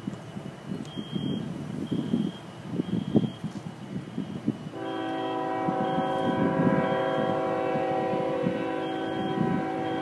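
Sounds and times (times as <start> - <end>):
wind buffeting microphone: 0.0 - 10.0
locomotive air horn: 4.7 - 10.0.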